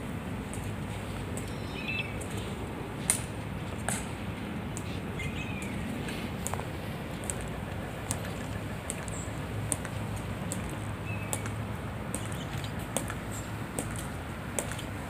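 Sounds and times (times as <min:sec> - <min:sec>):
bird chirping: 0:01.4 - 0:02.5, 0:05.1 - 0:05.9, 0:11.0 - 0:12.7
marching footsteps on stone: 0:05.6 - 0:15.0.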